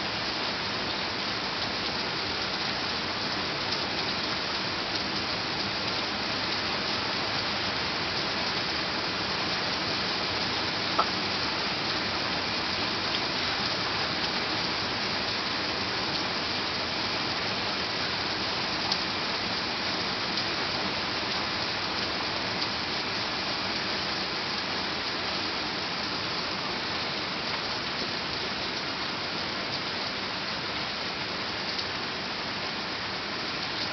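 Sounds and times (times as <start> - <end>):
heavy rain downpour: 0.0 - 33.9
sharp taps: 11.0 - 11.2.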